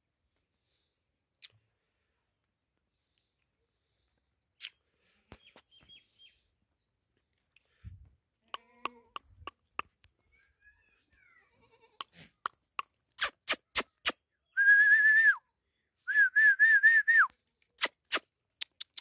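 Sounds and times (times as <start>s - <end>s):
sharp mouth clicks: 4.6s - 4.8s, 8.6s - 9.9s, 12.0s - 14.2s, 17.8s - 19.0s
person whistling: 14.6s - 15.4s, 16.1s - 17.3s.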